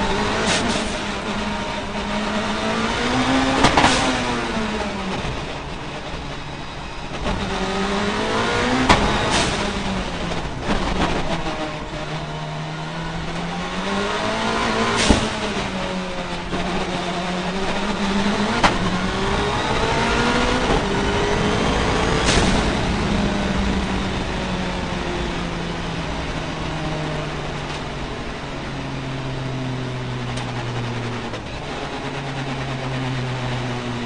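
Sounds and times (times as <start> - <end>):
race car engine revving: 0.0 - 34.0
sharp crack: 14.0 - 19.5, 20.1 - 23.6.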